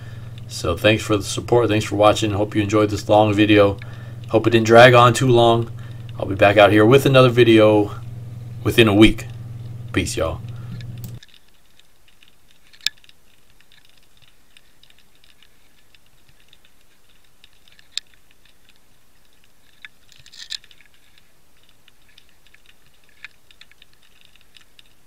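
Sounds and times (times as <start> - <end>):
low hiss: 0.0 - 19.9
faint clicking and crackling: 0.0 - 25.0.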